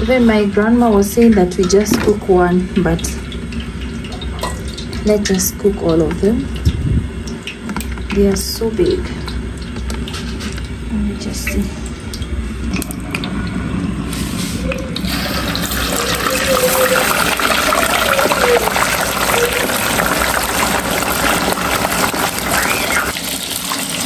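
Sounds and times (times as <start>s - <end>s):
fish deep-frying in hot oil: 0.0s - 24.0s.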